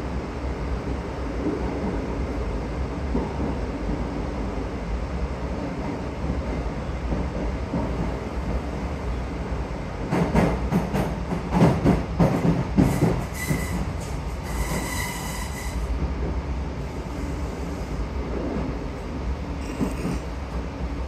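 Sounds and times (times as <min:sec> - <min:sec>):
train interior rumble: 0:00.0 - 0:21.0
thin wheel squeal: 0:14.5 - 0:15.8.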